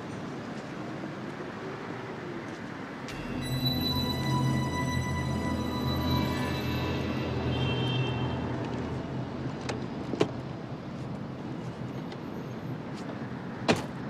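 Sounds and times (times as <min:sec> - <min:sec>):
passing traffic: 0:00.0 - 0:14.0
eerie film score: 0:03.0 - 0:12.0.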